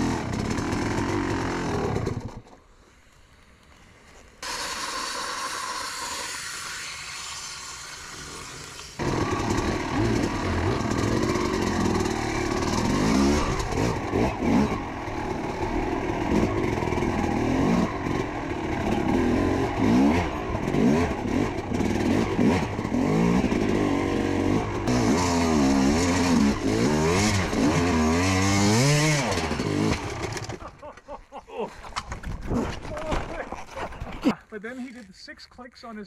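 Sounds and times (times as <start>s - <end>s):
dirt bike engine revving: 0.0s - 2.5s, 4.4s - 30.6s.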